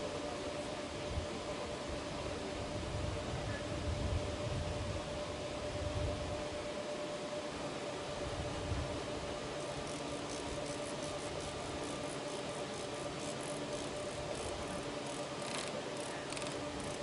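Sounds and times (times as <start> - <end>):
machinery hum: 0.0 - 17.0
ratchet clicks: 9.8 - 17.0.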